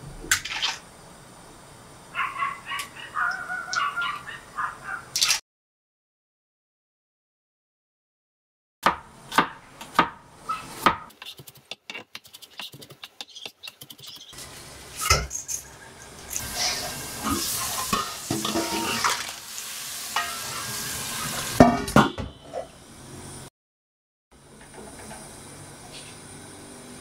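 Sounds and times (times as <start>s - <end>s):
gas stove hissing: 14.4s - 21.6s, 24.4s - 27.0s
pots and pans clanking: 16.8s - 19.4s, 20.1s - 22.7s.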